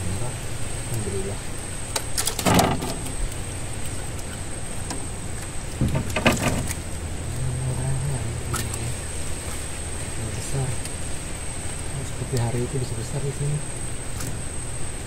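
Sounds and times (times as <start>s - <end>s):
boat engine humming: 0.0s - 15.0s
high-pitched whine: 0.0s - 15.0s
gear knocking and rattling: 1.9s - 7.4s.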